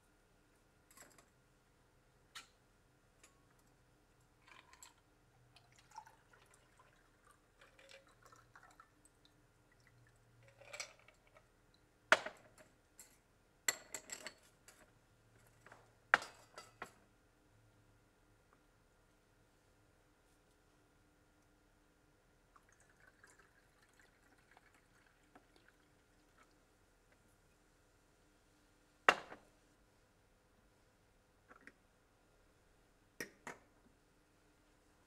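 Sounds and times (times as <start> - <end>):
liquid pouring and dripping: 4.4 - 11.4, 22.5 - 26.7.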